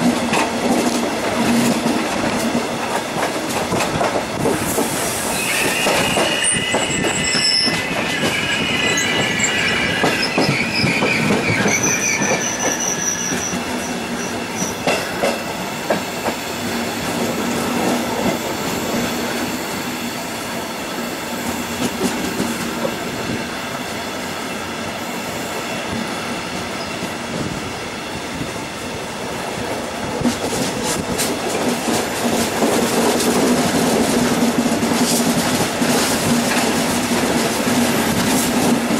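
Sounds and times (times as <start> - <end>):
train wheels rumbling on rail: 0.0 - 38.9
high wheel squeal: 5.0 - 14.8.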